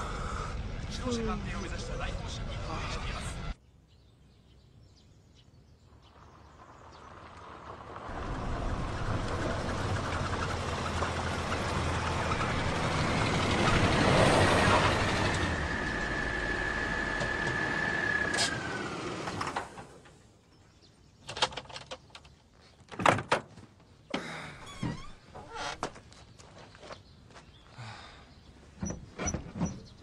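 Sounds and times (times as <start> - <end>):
truck engine: 6.2 - 20.2.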